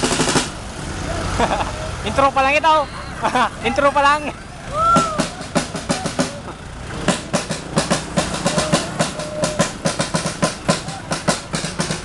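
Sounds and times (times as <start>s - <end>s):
rapid drum beats: 0.0s - 0.7s, 4.7s - 12.0s.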